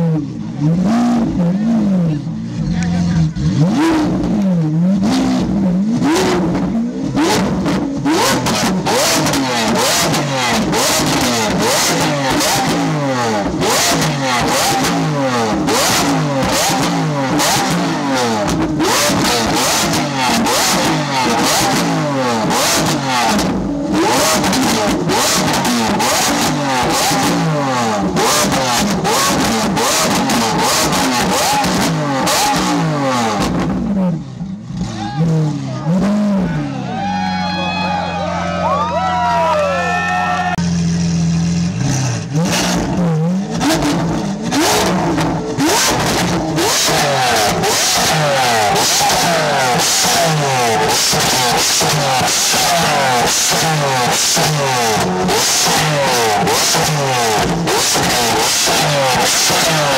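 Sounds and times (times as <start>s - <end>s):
car engine revving: 0.0s - 59.9s.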